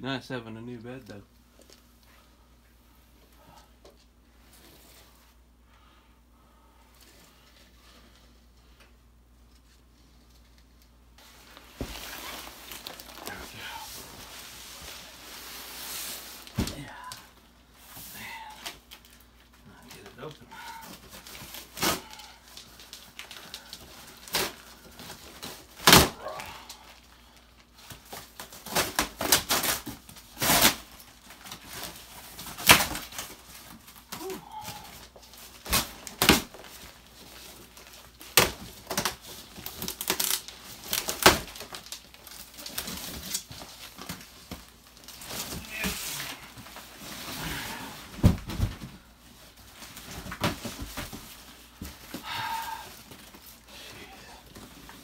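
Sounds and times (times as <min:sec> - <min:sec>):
cardboard tearing: 0:28.0 - 0:33.4, 0:35.6 - 0:46.5.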